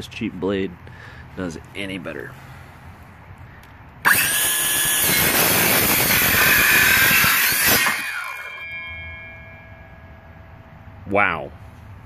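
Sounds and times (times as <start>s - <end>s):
saw cutting through board: 4.0s - 9.3s
saw motor spinning down: 4.0s - 10.0s.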